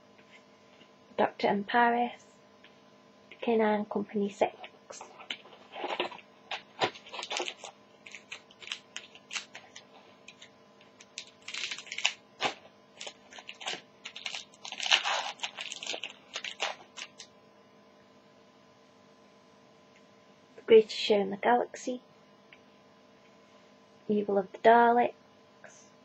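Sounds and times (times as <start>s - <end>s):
foil wrapper crinkling: 5.0s - 17.3s.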